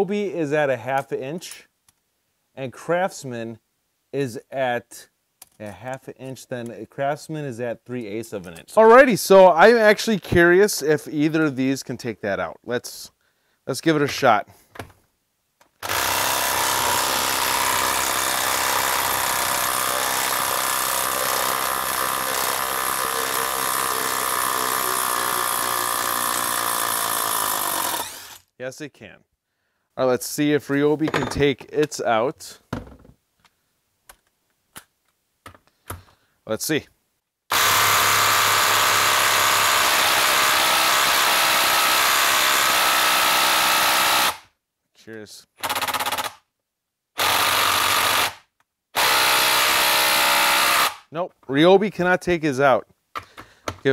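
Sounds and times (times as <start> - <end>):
impact driver hammering: 15.8 - 28.3, 49.0 - 51.0.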